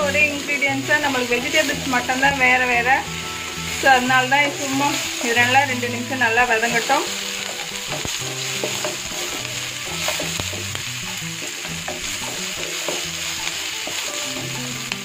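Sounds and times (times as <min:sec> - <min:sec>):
vegetables sizzling in hot oil: 0:00.0 - 0:15.0
spatula scraping a pan: 0:06.6 - 0:14.8.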